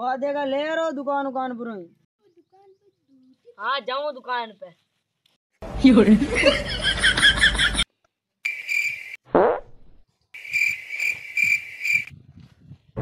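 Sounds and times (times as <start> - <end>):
cricket chirping: 8.4 - 9.2, 10.4 - 12.1.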